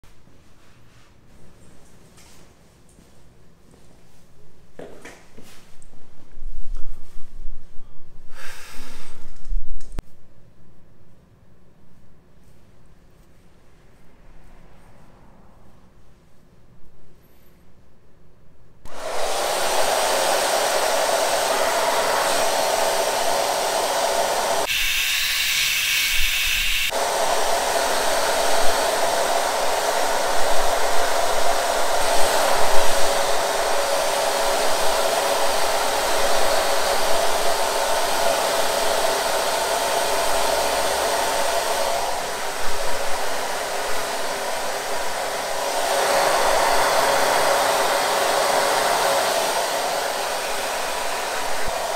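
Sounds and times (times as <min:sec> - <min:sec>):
hair dryer blowing: 0:08.3 - 0:09.6, 0:18.9 - 0:51.9.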